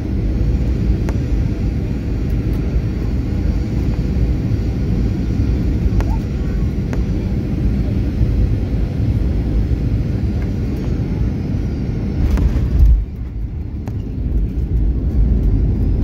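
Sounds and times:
airplane cabin rumble: 0.0s - 16.0s.

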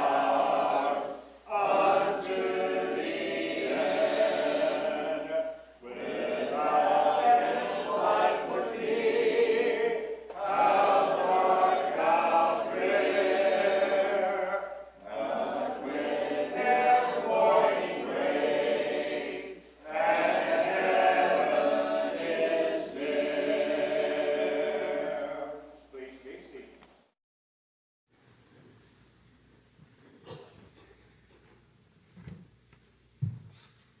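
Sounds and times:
congregation singing a hymn: 0.0s - 26.6s.

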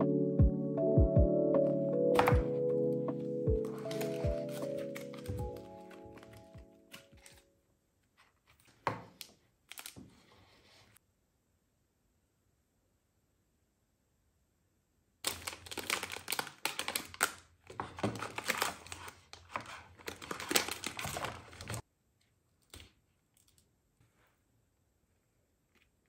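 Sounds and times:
plastic packaging crinkling: 3.6s - 7.5s, 8.6s - 10.3s, 15.2s - 21.8s.

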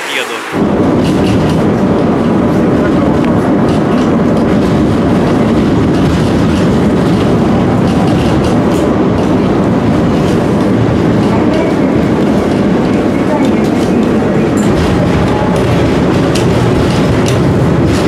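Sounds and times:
tram wheels rumbling on rails: 0.0s - 18.0s.

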